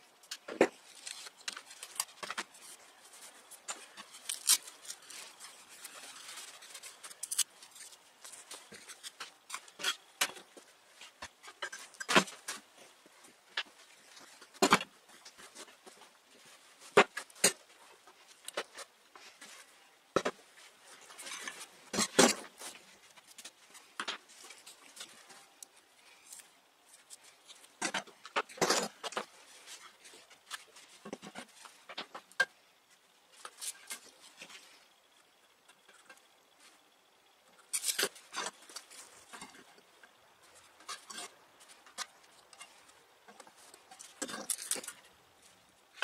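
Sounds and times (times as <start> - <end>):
handling rustle: 0.2 - 32.3.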